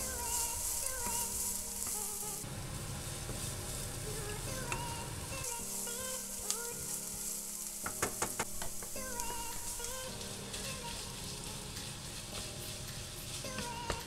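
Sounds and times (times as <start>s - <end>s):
onion sizzling in oil: 0.0s - 14.0s
wooden spatula stirring: 0.0s - 14.0s
sharp taps: 7.8s - 9.0s.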